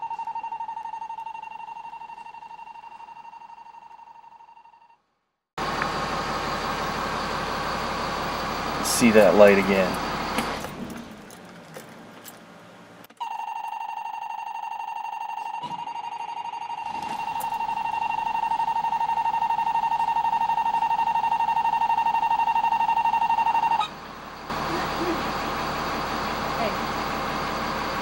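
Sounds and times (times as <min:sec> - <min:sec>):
warning buzzer high tone: 0:00.0 - 0:05.0, 0:08.8 - 0:10.1, 0:13.2 - 0:28.0.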